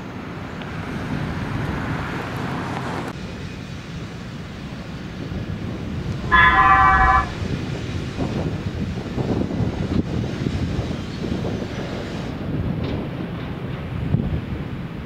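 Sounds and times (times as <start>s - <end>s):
low rumble of vehicles and machinery: 0.0s - 15.0s
vehicle horn: 6.1s - 7.5s.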